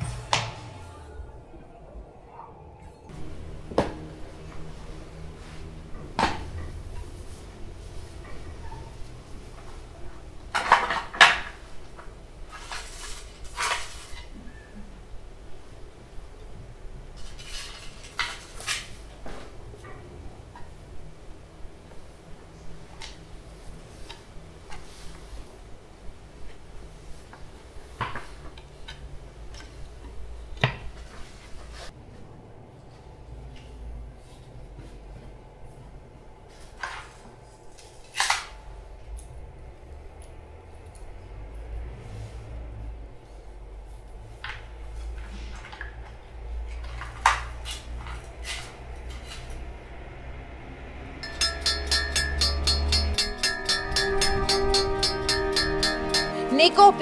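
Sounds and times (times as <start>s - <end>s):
low room hum: 0.0s - 56.7s
music with ticking beat: 51.2s - 57.0s.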